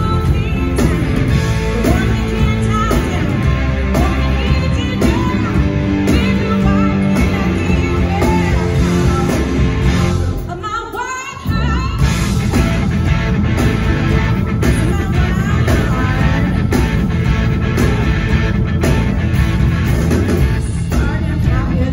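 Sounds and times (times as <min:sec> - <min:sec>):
woman singing: 0:00.0 - 0:12.2, 0:14.2 - 0:16.8, 0:20.6 - 0:21.9
blues-rock band playing: 0:00.0 - 0:21.9.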